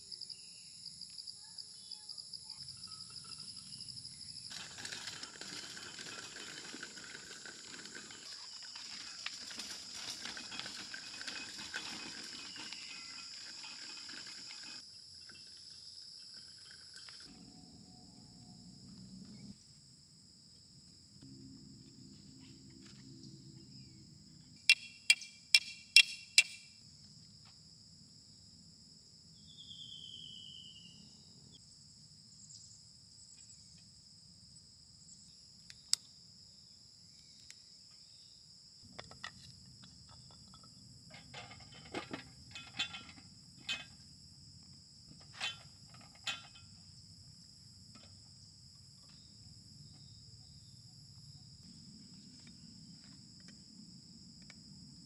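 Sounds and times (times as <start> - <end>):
high insect chorus: 0.0 - 55.0.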